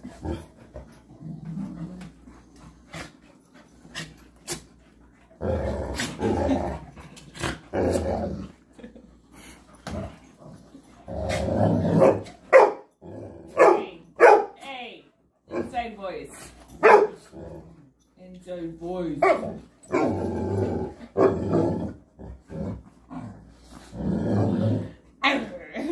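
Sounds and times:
dogs growling: 0.0 - 13.7, 16.6 - 18.2, 19.2 - 25.9.

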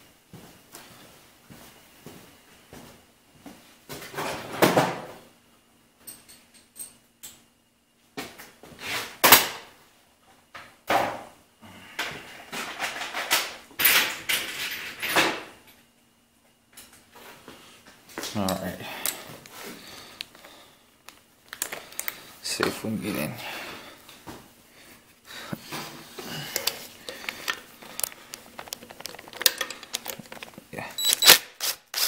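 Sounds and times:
metal tools clattering: 26.4 - 31.3.

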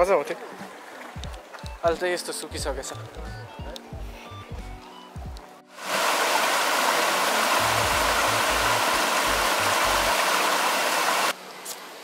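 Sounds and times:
stream rushing over boulders: 5.7 - 12.0.

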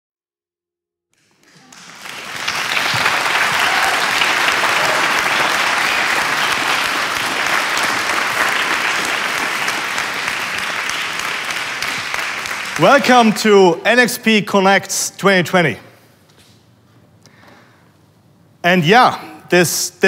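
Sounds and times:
crowd applause: 1.2 - 13.4.

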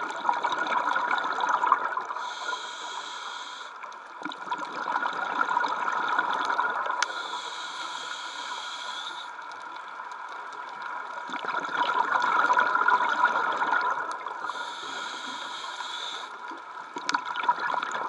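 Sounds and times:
exhaled bubbles underwater: 0.0 - 2.6, 4.1 - 7.0, 10.8 - 15.1, 16.5 - 18.0
regulator breathing hiss: 2.2 - 3.9, 7.0 - 9.4, 14.4 - 16.4.

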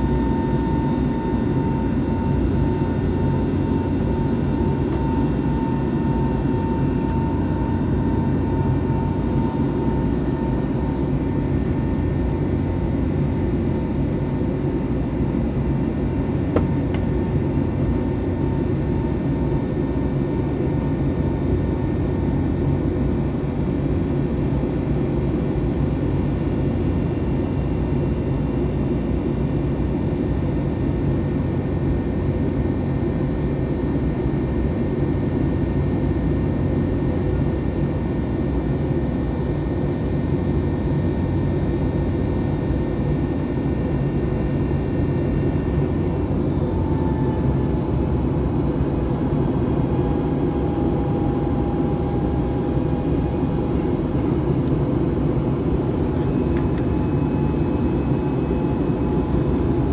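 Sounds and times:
faint whining tones: 0.0 - 13.0
jet engine rumble in cabin: 0.0 - 59.9.

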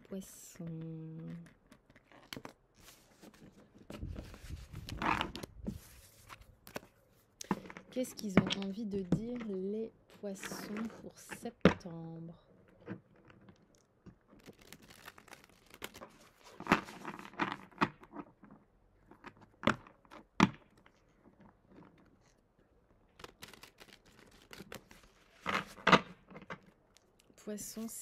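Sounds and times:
cards being shuffled: 0.6 - 7.8, 13.8 - 18.2, 23.2 - 27.0.

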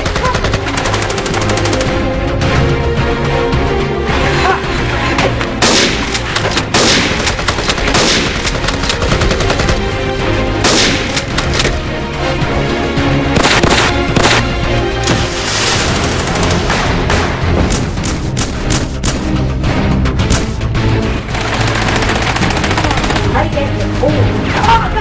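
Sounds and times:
rapid gunfire: 0.0 - 2.1, 5.6 - 10.0, 13.4 - 14.5, 15.2 - 16.9, 21.2 - 23.4
single gunshots: 13.4 - 14.5.

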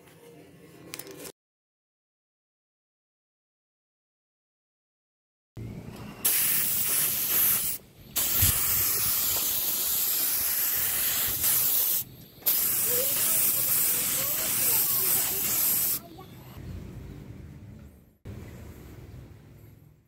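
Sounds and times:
spray gun hissing: 6.2 - 16.1.

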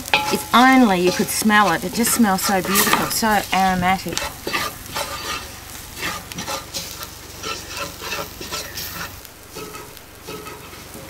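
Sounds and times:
onions and spices sizzling in oil: 0.0 - 11.0
spoon scraping metal pot: 0.1 - 10.8.

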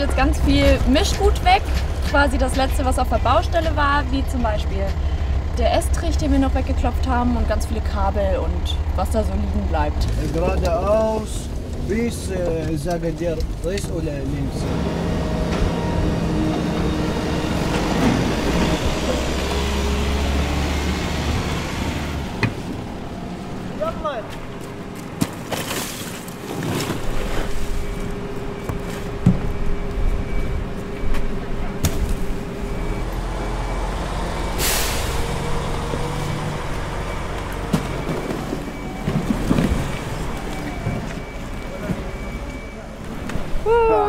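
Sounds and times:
vehicle engine and road rumble: 0.0 - 44.0
air brake hiss: 34.6 - 35.2.

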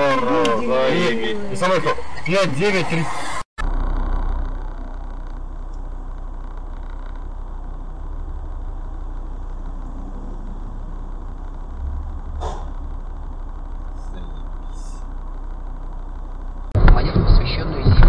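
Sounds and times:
car engine idling: 0.0 - 18.0
short swish: 12.4 - 12.7.

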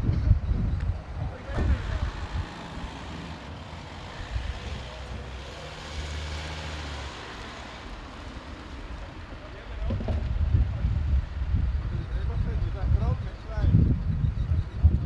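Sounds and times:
van engine drone: 0.1 - 12.9.

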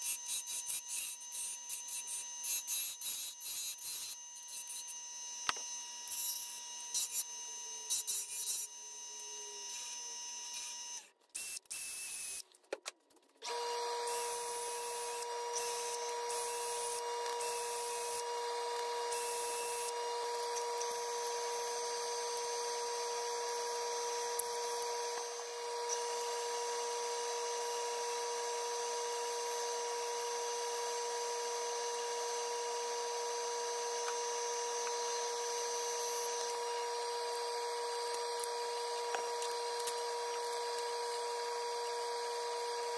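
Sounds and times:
wood lathe motor hum: 13.4 - 42.9.

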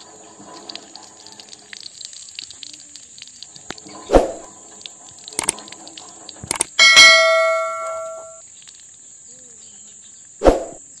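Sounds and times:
notification bell chime: 6.8 - 8.4.

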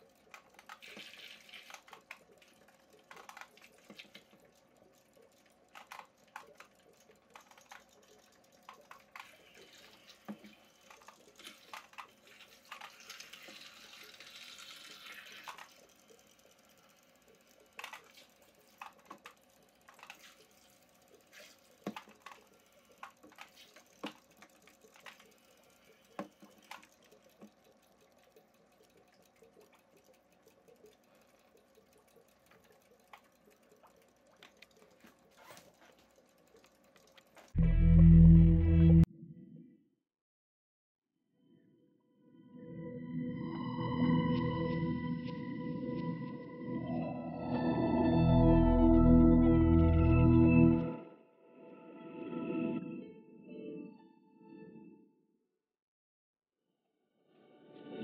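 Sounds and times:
aquarium water splashing: 0.0 - 37.6.

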